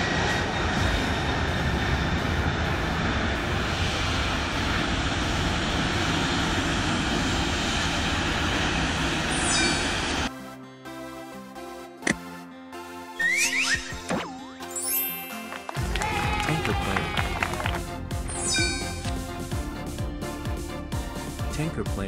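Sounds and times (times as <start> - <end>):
jet engine roar: 0.0 - 10.3.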